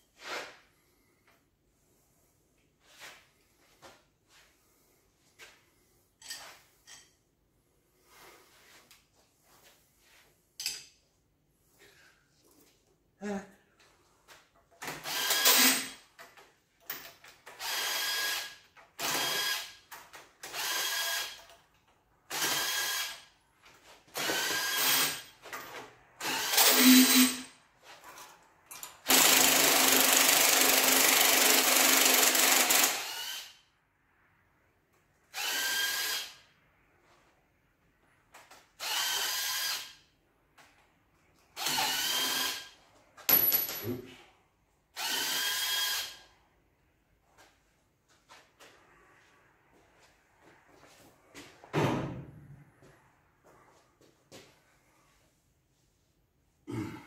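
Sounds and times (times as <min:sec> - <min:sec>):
air tool spinning bolts: 0:15.0 - 0:16.0, 0:17.6 - 0:19.8, 0:20.5 - 0:21.5, 0:22.3 - 0:23.3, 0:24.2 - 0:25.2, 0:26.2 - 0:27.5, 0:28.9 - 0:33.6, 0:35.3 - 0:36.4, 0:38.8 - 0:40.0, 0:41.6 - 0:43.6, 0:45.0 - 0:46.2.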